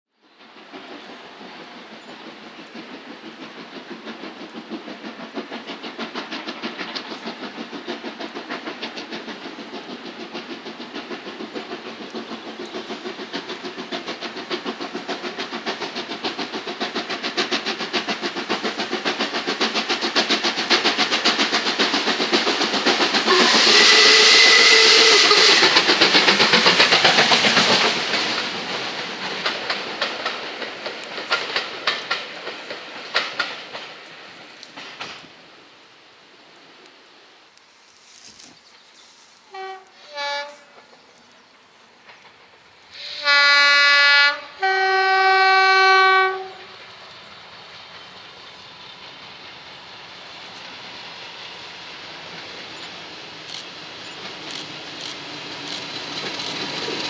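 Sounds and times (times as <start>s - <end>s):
loud hiss of steam: 0.2s - 57.0s
steam locomotive exhaust beats: 0.2s - 57.0s.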